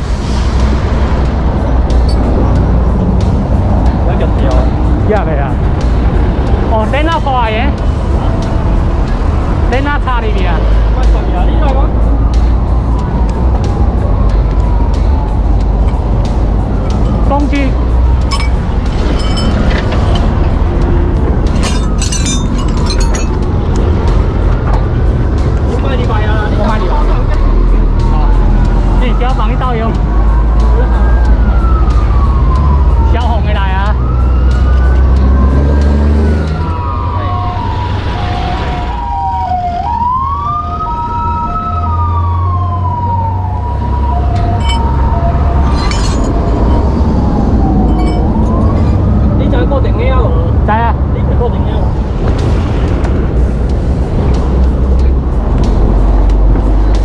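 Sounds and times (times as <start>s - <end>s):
heavy vehicle engine rumble: 0.0s - 39.4s, 40.0s - 57.0s
wailing siren: 11.6s - 50.0s
metallic rattles and clicks: 21.4s - 23.9s
hi-lo two-tone siren: 29.1s - 49.7s.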